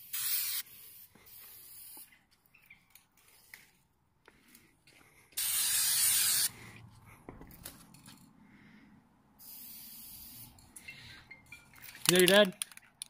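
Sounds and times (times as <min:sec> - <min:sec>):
spray paint can spraying: 0:00.0 - 0:02.2, 0:05.4 - 0:06.5, 0:09.4 - 0:10.6.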